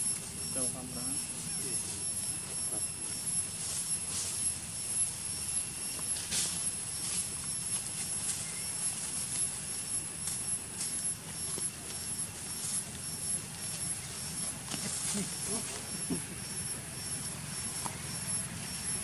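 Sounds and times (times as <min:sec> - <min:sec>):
faint high steady tones: 0:00.0 - 0:19.0
soft rustle: 0:03.2 - 0:05.2, 0:05.8 - 0:16.0.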